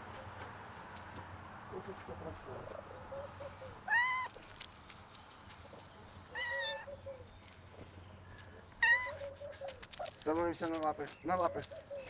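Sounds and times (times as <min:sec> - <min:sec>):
cat meowing: 0:03.9 - 0:04.3, 0:06.3 - 0:06.9, 0:08.8 - 0:09.3.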